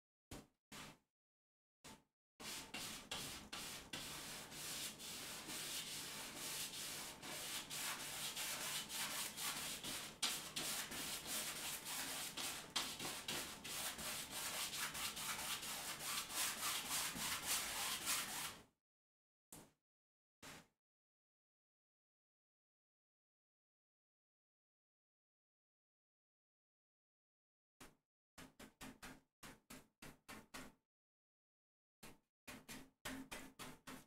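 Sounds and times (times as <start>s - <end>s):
paintbrush scrubbing canvas: 2.4s - 18.6s.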